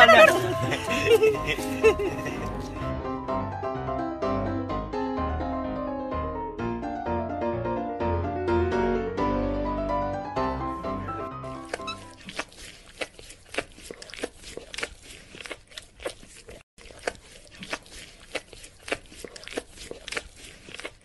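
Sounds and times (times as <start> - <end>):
puppy chewing watermelon: 0.0 - 2.9, 11.5 - 21.0.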